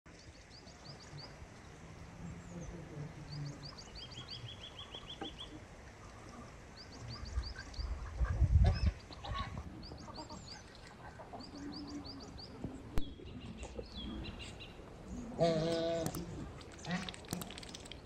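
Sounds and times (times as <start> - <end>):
small birds chirping: 2.4 - 18.0.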